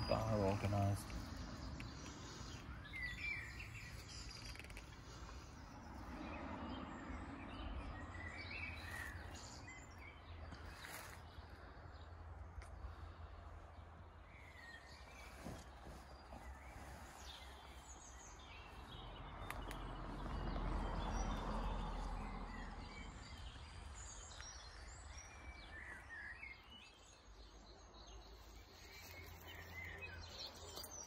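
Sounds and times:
bird chirps: 0:00.0 - 0:05.5.

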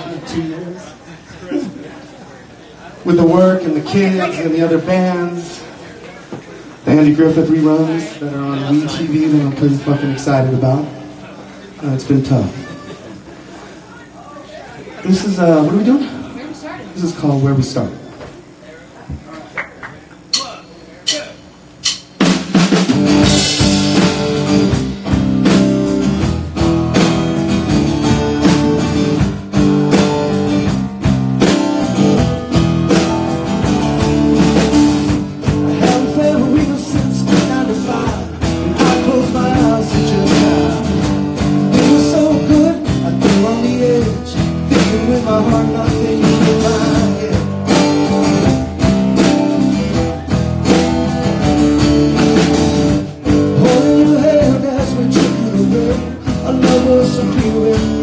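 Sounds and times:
drum kit: 0:20.2 - 0:58.0
strummed acoustic guitar: 0:21.8 - 0:58.0
man singing into microphone: 0:35.7 - 0:47.6, 0:53.5 - 0:58.0.

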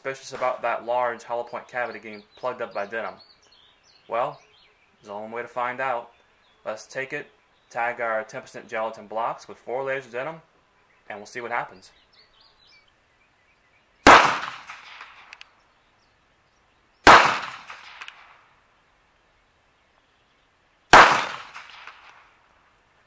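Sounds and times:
pistol shots: 0:14.0 - 0:15.4, 0:17.0 - 0:18.4, 0:20.9 - 0:22.3.

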